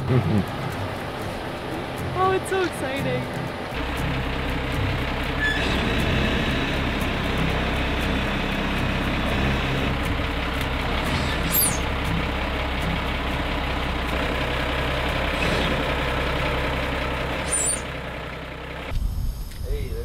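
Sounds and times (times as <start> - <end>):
diesel truck engine at low revs: 0.0 - 19.0
high squeak: 5.4 - 6.1, 11.0 - 11.9, 17.4 - 17.9.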